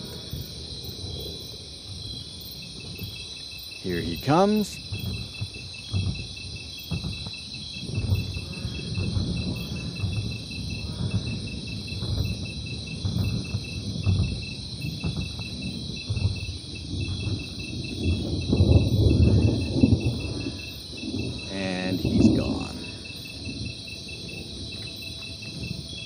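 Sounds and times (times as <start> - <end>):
insects chirping: 0.0 - 26.0
heavy deep footstep thuds: 4.8 - 20.3.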